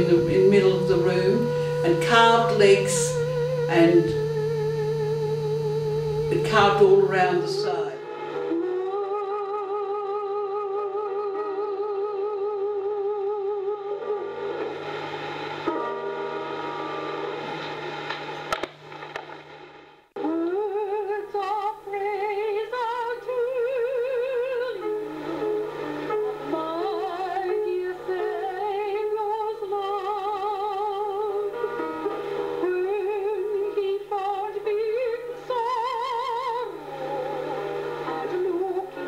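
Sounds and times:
operatic singing: 0:00.0 - 0:14.4.

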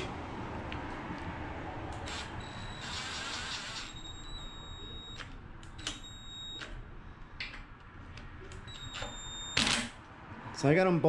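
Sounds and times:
cordless drill motor whine: 0:02.0 - 0:05.2.

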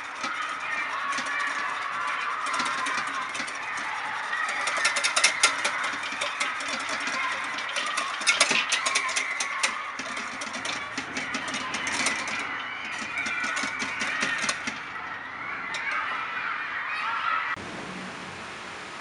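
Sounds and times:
whisk clattering in a plastic bowl: 0:00.0 - 0:15.0.

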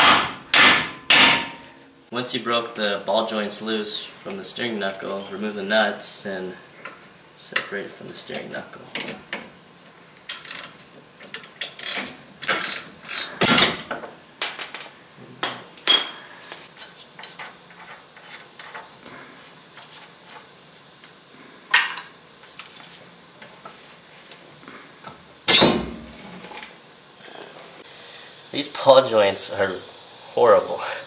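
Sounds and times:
sharp metal clank: 0:00.0 - 0:01.8, 0:25.5 - 0:26.2.

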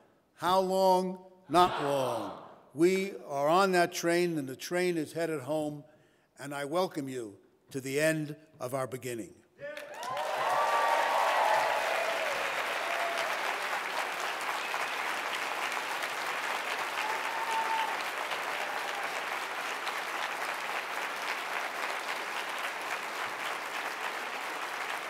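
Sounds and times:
large audience applauding: 0:09.6 - 0:25.0.

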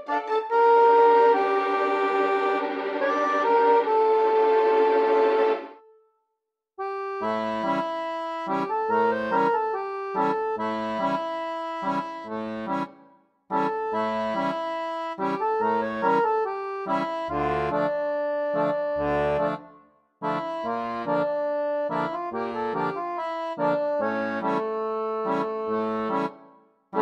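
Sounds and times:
accordion music: 0:00.0 - 0:05.9, 0:06.8 - 0:27.0.

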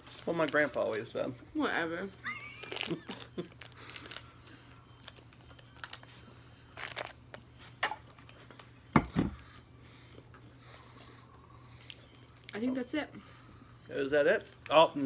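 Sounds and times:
wrapper crinkling: 0:00.0 - 0:01.3, 0:02.4 - 0:07.4.

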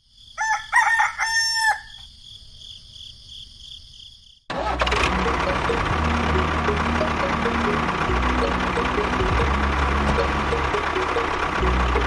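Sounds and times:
rooster crowing: 0:00.4 - 0:02.1
loud motor-like noise: 0:04.5 - 0:12.0
high-pitched chirring: 0:05.0 - 0:12.0.

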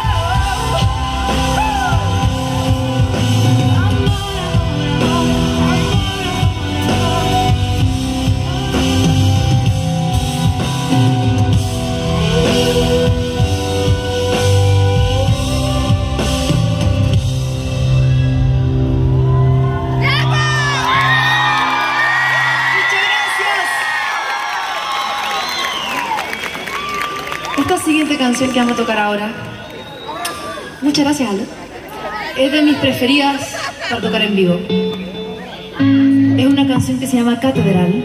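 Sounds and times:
drum kit: 0:00.0 - 0:20.6
bass guitar: 0:00.0 - 0:22.8, 0:33.8 - 0:38.0
guitar: 0:00.0 - 0:23.4, 0:31.6 - 0:38.0.

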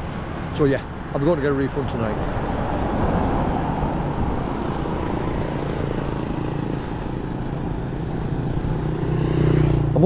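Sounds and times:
road traffic rumbling: 0:00.0 - 0:10.0
motorbike engine approaching: 0:04.8 - 0:10.0.

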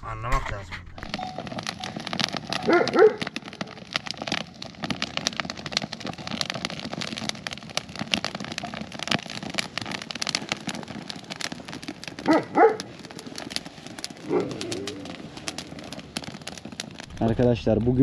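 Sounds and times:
wood fire crackling: 0:00.5 - 0:18.0
dog barking: 0:02.6 - 0:03.2, 0:12.3 - 0:12.8.

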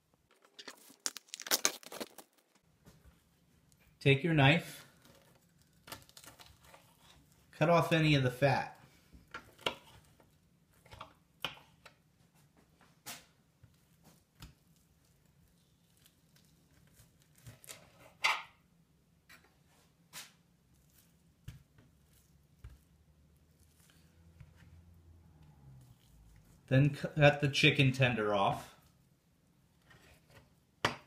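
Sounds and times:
wet meat handling sounds: 0:00.5 - 0:02.5, 0:20.6 - 0:24.9.

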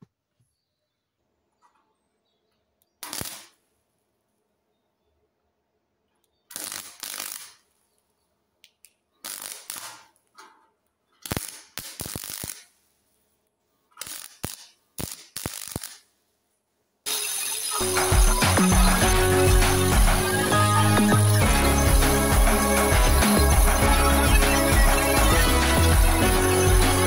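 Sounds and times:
welder arc crackling: 0:03.0 - 0:03.5, 0:06.5 - 0:07.6, 0:09.2 - 0:10.0, 0:11.2 - 0:12.8, 0:14.0 - 0:16.1, 0:17.1 - 0:27.0.

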